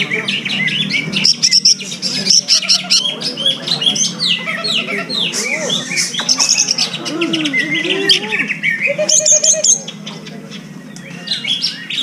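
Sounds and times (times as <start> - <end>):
bird singing chirps and whistles: 5.2 - 10.0.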